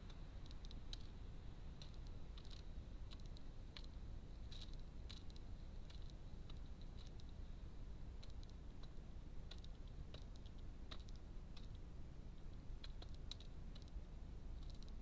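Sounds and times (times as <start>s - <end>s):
low background rumble: 0.0s - 15.0s
beak clicking on seed tray: 8.2s - 11.8s, 12.8s - 14.0s.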